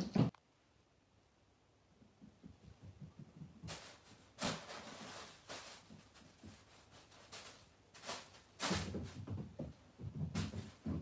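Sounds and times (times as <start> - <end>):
paws knocking on wooden floor: 2.1 - 3.7, 8.9 - 11.0
plastic bag crinkling: 3.7 - 9.1.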